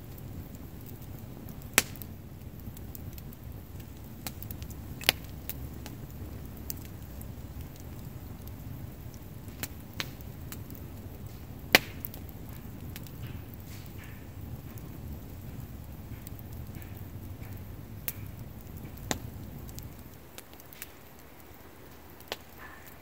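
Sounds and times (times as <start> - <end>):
campfire crackling: 0.0 - 23.0
low fire rumble: 0.0 - 23.0
loud pops from logs: 1.6 - 2.1, 3.8 - 7.1, 9.5 - 21.2, 21.9 - 23.0.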